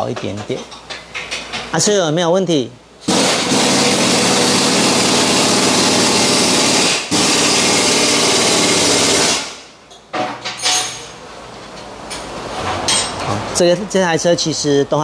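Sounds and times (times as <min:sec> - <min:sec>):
impact wrench running: 0:03.1 - 0:09.7.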